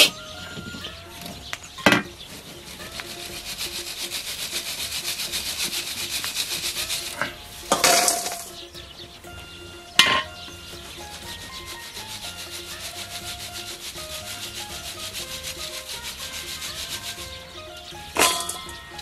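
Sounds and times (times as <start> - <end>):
pieces rattling in wire-mesh strainer: 2.6 - 8.6, 11.1 - 19.0.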